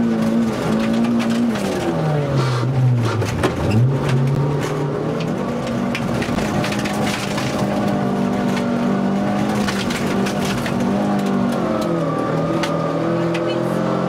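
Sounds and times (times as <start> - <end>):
rally car engine from inside cabin: 0.0 - 14.0
gravel clattering against underbody: 3.2 - 12.5.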